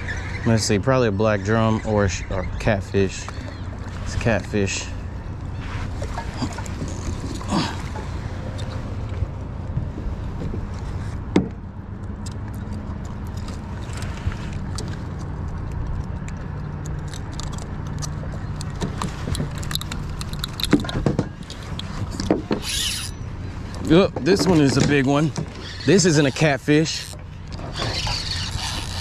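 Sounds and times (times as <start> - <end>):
small metal clicks and clinks: 16.2 - 21.9.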